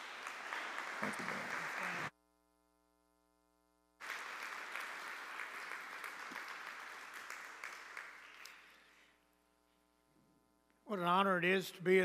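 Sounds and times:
congregation applauding: 0.0 - 2.1, 4.0 - 9.2.

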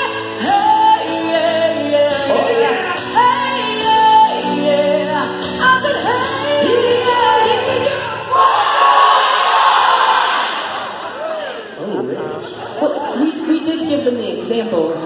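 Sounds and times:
acoustic guitar strumming: 0.0 - 8.4
crowd cheering: 8.1 - 11.9
crowd chanting: 8.2 - 11.7.

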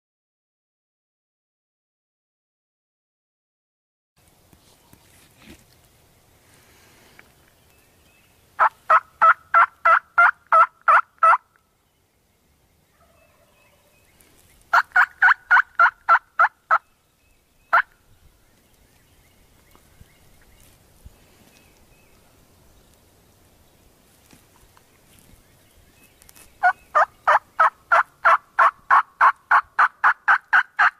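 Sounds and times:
turkey yelping: 8.6 - 11.4, 13.0 - 13.9, 14.7 - 16.8, 26.6 - 30.9.

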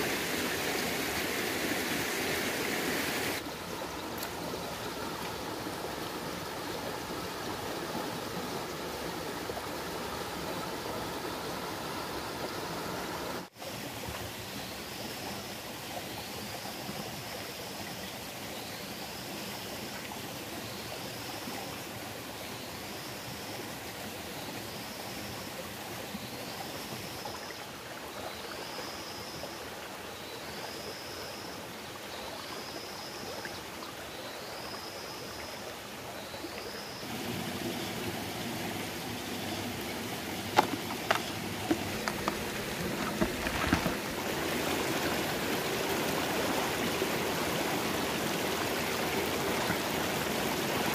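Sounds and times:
rocky stream flowing: 0.0 - 50.9.

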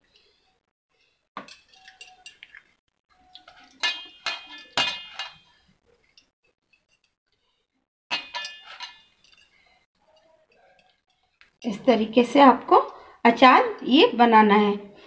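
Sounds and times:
steel plate clinking: 3.5 - 5.6, 8.1 - 10.9.

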